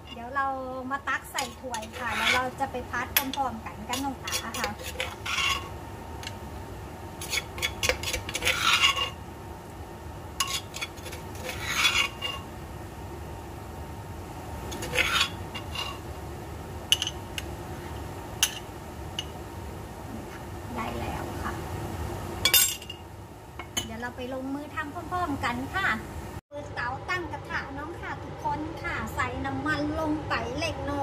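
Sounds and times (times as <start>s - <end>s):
utensil scraping and stirring cookware: 0.0s - 0.4s, 1.0s - 6.4s, 7.2s - 9.2s, 10.4s - 12.5s, 14.6s - 16.2s, 16.9s - 19.4s.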